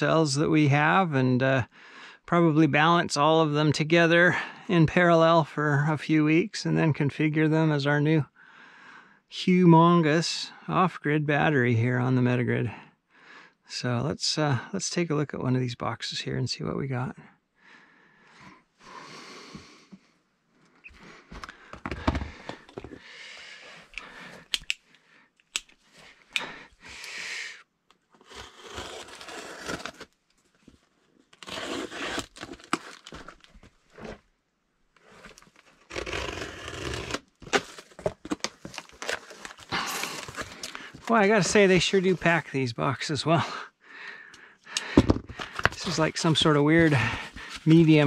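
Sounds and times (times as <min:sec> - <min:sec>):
utility knife slitting tape: 0:28.2 - 0:30.1, 0:31.4 - 0:33.1, 0:35.8 - 0:37.8
cardboard scraping and rustling: 0:28.4 - 0:30.1, 0:31.4 - 0:34.2, 0:35.0 - 0:42.2, 0:45.1 - 0:48.0.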